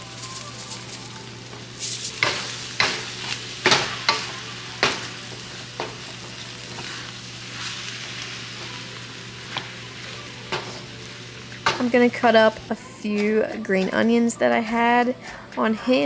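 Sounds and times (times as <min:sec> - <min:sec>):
stir-fry sizzling in a wok: 0:00.0 - 0:13.2
spatula scraping and knocking pan: 0:01.5 - 0:08.8, 0:10.5 - 0:10.9.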